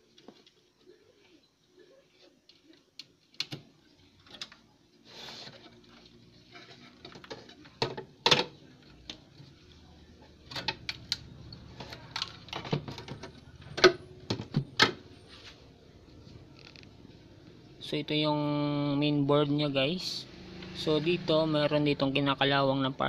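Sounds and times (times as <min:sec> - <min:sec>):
short scrape: 0:05.0 - 0:05.6.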